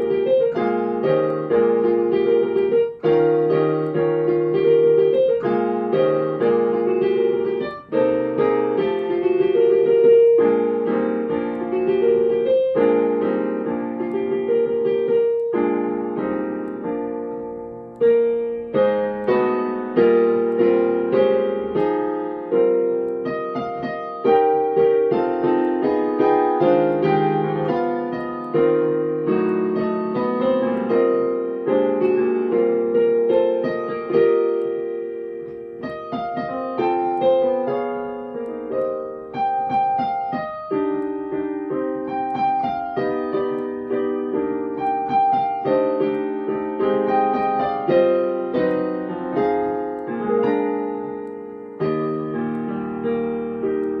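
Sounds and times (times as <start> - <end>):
solo piano music: 0.0 - 54.0.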